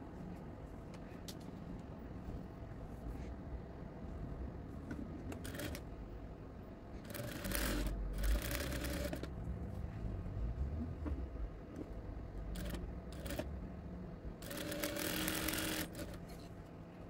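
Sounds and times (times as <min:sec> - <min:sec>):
industrial sewing machine stitching: 0:05.4 - 0:05.8, 0:07.0 - 0:09.3, 0:12.5 - 0:13.5, 0:14.4 - 0:16.2.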